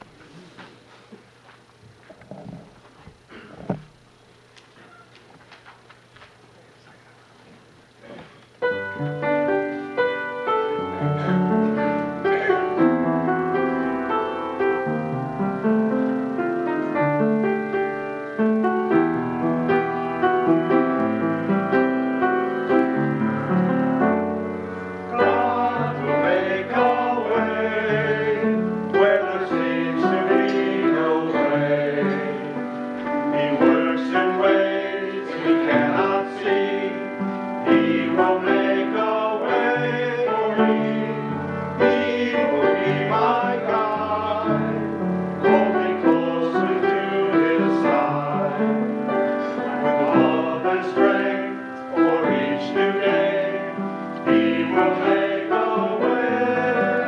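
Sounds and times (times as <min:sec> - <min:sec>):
piano chords: 0:08.6 - 0:57.0
choir singing: 0:25.0 - 0:57.0.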